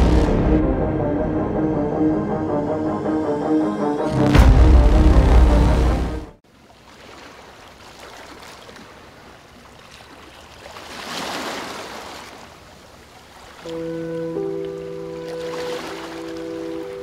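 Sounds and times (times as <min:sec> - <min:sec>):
music with held notes: 0:00.0 - 0:06.2, 0:13.7 - 0:17.0
music: 0:00.0 - 0:06.4, 0:13.7 - 0:17.0
water rushing like surf: 0:10.6 - 0:17.0.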